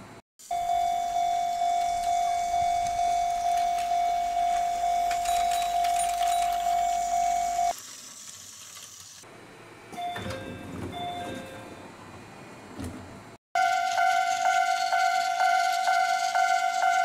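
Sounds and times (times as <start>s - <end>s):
toy crossing warning bell: 0.5s - 7.7s, 13.6s - 17.0s.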